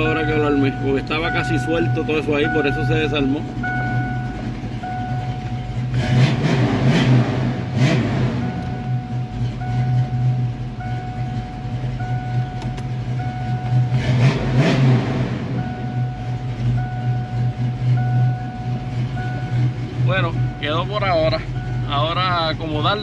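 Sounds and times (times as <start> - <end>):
dashboard warning tone: 0.0 - 6.5, 7.5 - 23.0
car engine idling: 0.0 - 23.0.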